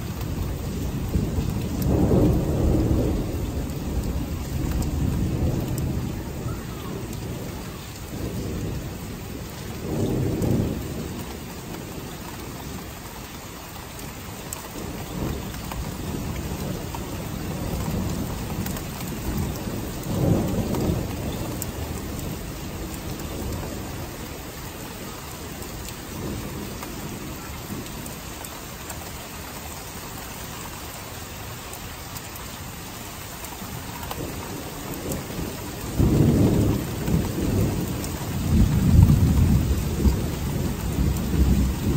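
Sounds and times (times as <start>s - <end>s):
thunder rolling: 0.0s - 12.8s, 14.8s - 24.3s, 34.1s - 41.9s
steady rain: 0.0s - 41.9s.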